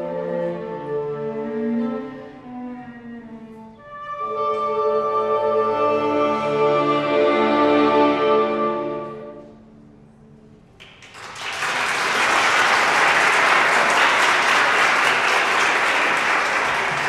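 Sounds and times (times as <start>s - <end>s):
audience applause: 10.8s - 17.0s.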